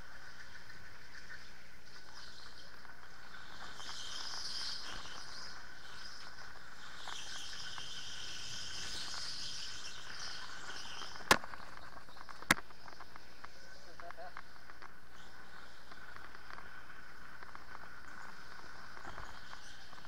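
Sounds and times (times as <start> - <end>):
electric go-kart motor whine: 1.1 - 12.1.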